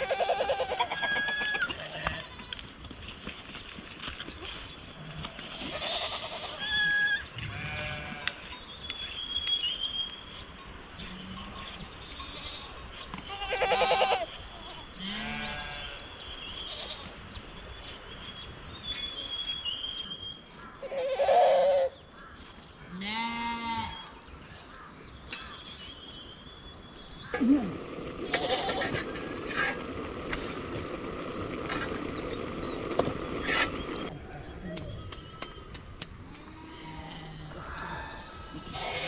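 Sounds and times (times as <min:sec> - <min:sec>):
sheep bleating: 0:05.7 - 0:08.4, 0:28.2 - 0:29.0, 0:38.5 - 0:39.0.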